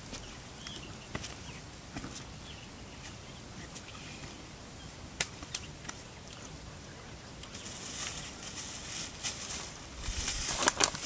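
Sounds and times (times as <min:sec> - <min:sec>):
footsteps on dry leaves: 0:07.5 - 0:11.0.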